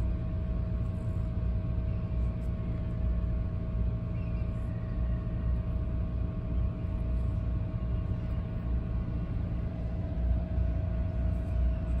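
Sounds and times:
constant mid-pitched hum: 0.0 - 12.0
low background rumble: 0.0 - 12.0.

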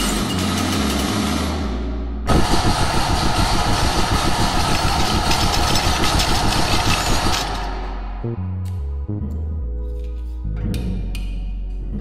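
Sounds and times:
loud mechanical rattle: 0.0 - 8.2.

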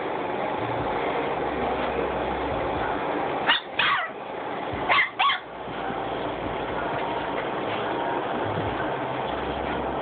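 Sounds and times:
puppies yipping: 3.5 - 4.2, 4.9 - 5.5.

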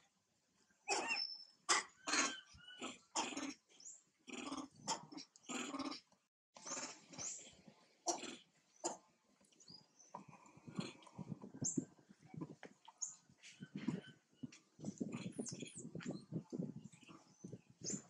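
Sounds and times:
macaques grunting and calling: 8.0 - 9.0.

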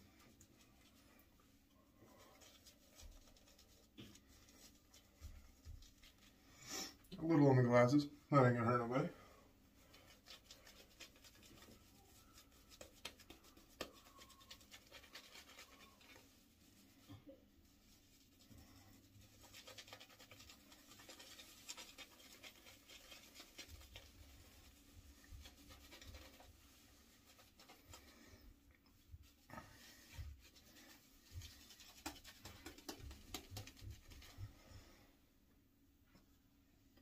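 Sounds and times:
shaving brush swishing on beard: 9.8 - 35.0.

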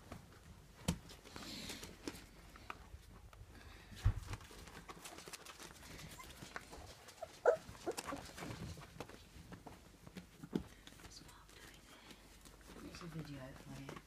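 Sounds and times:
puppies yipping and growling: 5.9 - 8.6.

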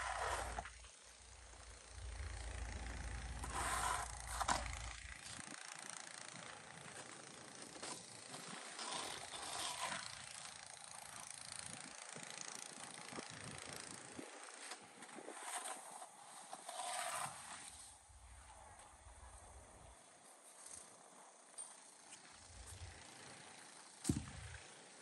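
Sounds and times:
snow shovel scraping pavement: 0.0 - 0.7, 3.0 - 5.4, 6.9 - 10.5, 14.6 - 18.0.

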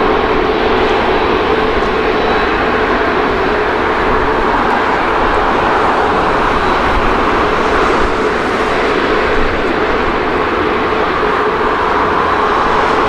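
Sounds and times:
jet engines running: 0.0 - 13.0.

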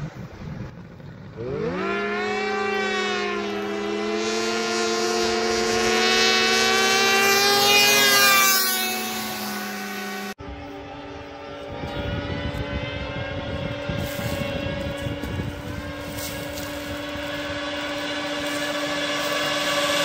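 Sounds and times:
small vehicle engine at full throttle: 0.0 - 20.0.

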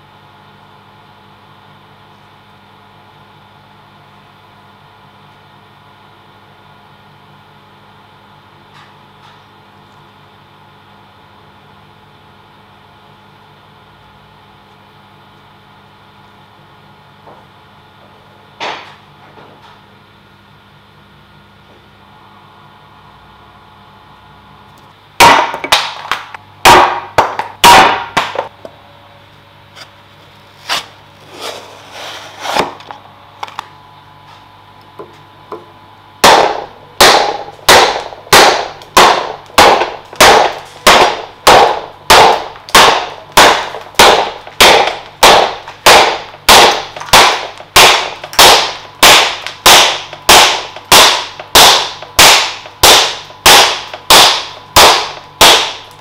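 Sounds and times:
axe chopping wood: 36.2 - 55.8.

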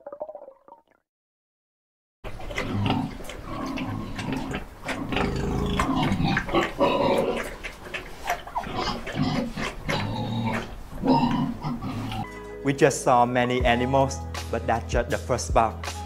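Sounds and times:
pigs grunting: 2.3 - 12.3.

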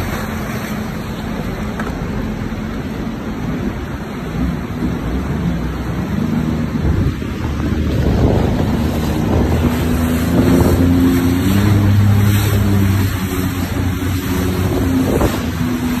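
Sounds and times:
jet ski engine running: 0.0 - 16.0
water splashing: 0.0 - 16.0
wind noise on microphone: 3.5 - 16.0.

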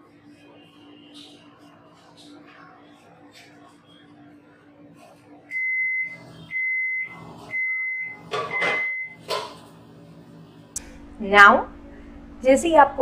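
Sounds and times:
microwave oven humming: 0.0 - 13.0
high steady microwave beeps: 5.5 - 9.2.

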